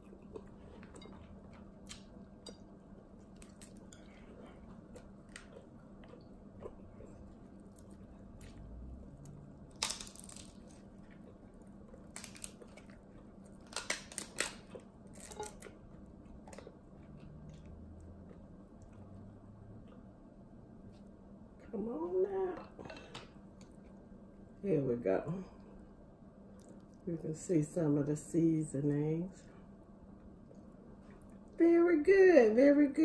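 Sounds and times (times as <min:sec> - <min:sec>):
chewing: 0:00.0 - 0:20.2, 0:26.5 - 0:27.1, 0:30.2 - 0:31.6
crab shells cracking: 0:09.6 - 0:11.0, 0:12.0 - 0:15.7.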